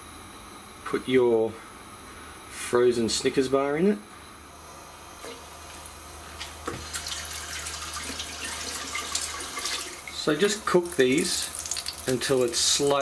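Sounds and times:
food deep-frying in oil: 0:05.6 - 0:13.0.

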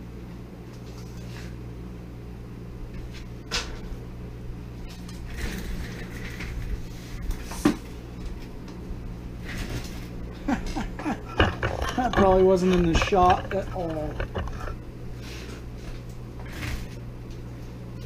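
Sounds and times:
steady low hum: 0:00.0 - 0:18.0
steel pieces knocking and scraping: 0:10.7 - 0:14.8.

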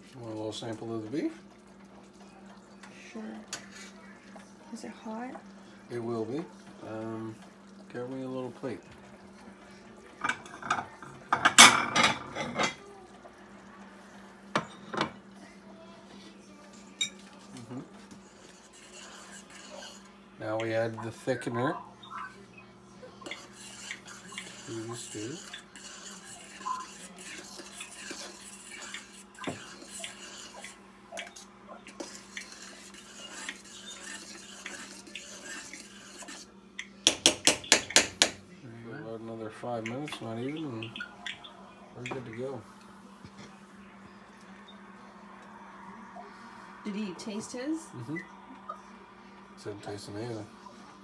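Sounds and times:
dishes and cutlery clattering: 0:10.2 - 0:12.9
spoon clinking and scraping pot: 0:18.2 - 0:20.7, 0:23.2 - 0:38.4.

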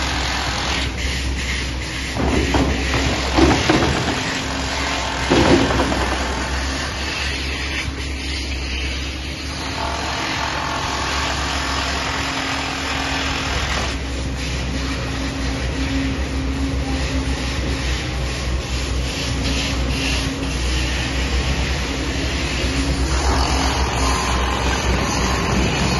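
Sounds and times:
construction site noise: 0:00.0 - 0:25.9
diesel engine running: 0:10.6 - 0:25.9.

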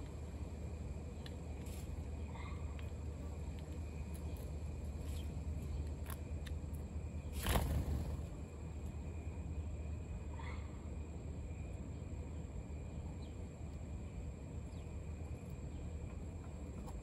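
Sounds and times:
whir of bird wings: 0:07.2 - 0:08.5.

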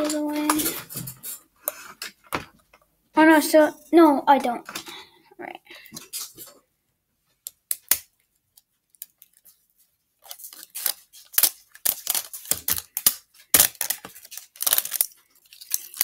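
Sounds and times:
plastic packaging crackling: 0:07.7 - 0:09.6, 0:10.2 - 0:16.0.

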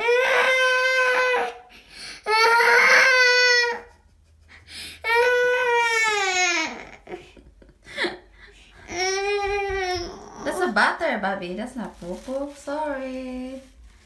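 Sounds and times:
toddler crying: 0:00.0 - 0:01.7, 0:02.3 - 0:03.9, 0:05.0 - 0:07.2, 0:08.8 - 0:10.6.

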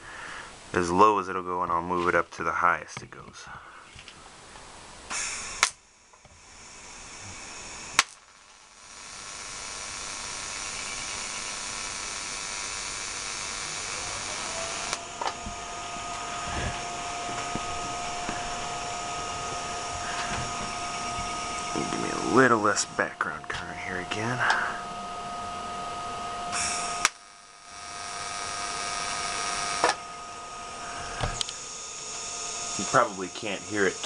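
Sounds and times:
welding arc hissing: 0:05.0 - 0:34.0
sharp clicks: 0:05.1 - 0:06.2, 0:26.5 - 0:27.3, 0:31.3 - 0:31.6
high-pitched whine: 0:05.1 - 0:34.0.

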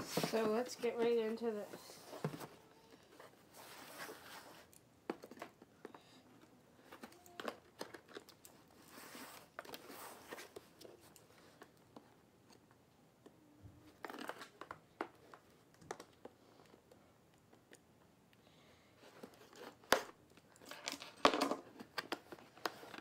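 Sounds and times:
light crinkling: 0:00.0 - 0:17.9.

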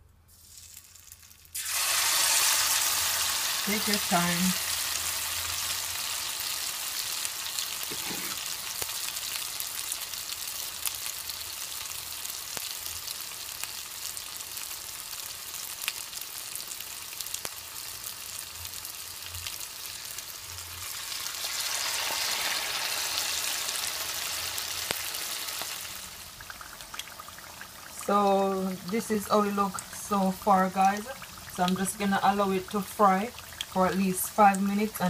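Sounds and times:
fritters sizzling in oil: 0:00.3 - 0:35.0.

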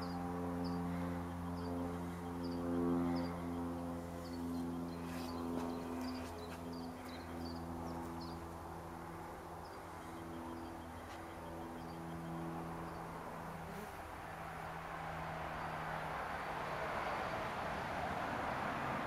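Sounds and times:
distant motor hum: 0:00.0 - 0:19.0
broad wash of noise: 0:14.0 - 0:19.0.

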